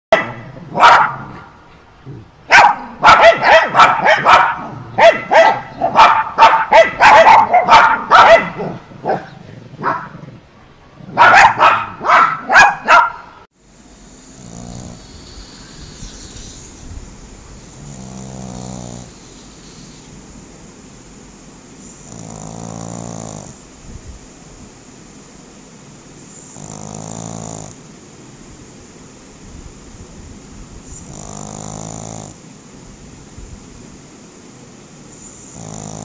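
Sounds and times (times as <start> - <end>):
dog barking: 0.1 - 1.6, 2.5 - 10.2, 11.1 - 13.4
dog snoring: 14.2 - 16.7, 17.6 - 20.1, 21.8 - 23.6, 26.3 - 27.8, 30.9 - 32.4, 35.2 - 36.0.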